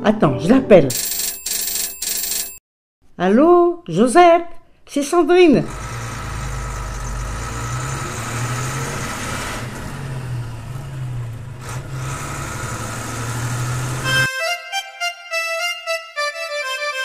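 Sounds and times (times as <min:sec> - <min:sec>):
music: 0:00.0 - 0:00.9, 0:14.1 - 0:17.0
road noise: 0:05.6 - 0:14.3
car engine hum: 0:05.7 - 0:14.2.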